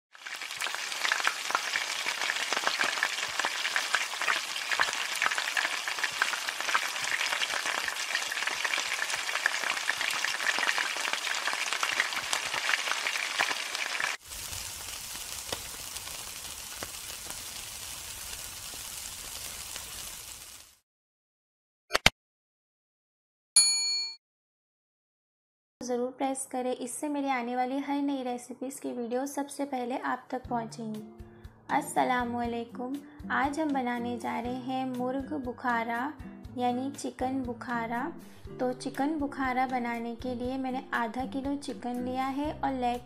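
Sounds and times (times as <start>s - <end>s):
food sizzling in hot oil: 0.1s - 20.8s.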